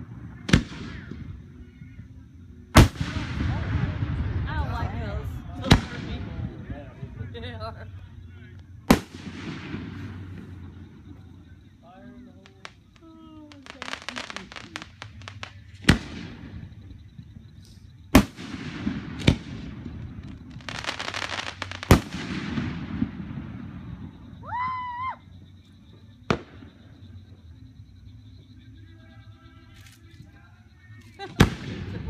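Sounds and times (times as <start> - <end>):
fireworks booming: 0.0 - 2.0, 2.6 - 8.2, 8.8 - 11.7, 12.6 - 25.0, 26.2 - 27.4, 31.2 - 32.0
fireworks crackling: 0.0 - 25.2, 25.8 - 27.4, 29.2 - 32.0.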